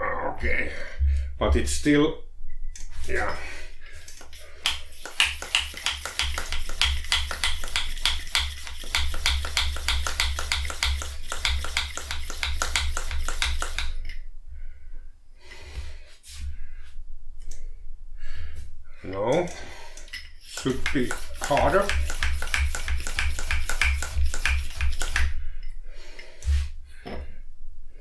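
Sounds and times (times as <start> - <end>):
bicycle pump clicking strokes: 4.0 - 14.0, 19.9 - 25.4.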